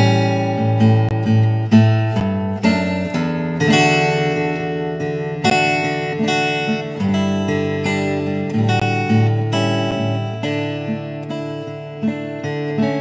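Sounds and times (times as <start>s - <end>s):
acoustic guitar chords: 0.0s - 13.0s.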